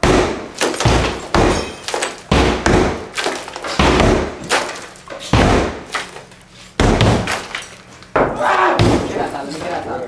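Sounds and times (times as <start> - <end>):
sledgehammer crashing into wall: 0.0 - 6.0, 6.8 - 7.6, 8.2 - 9.3.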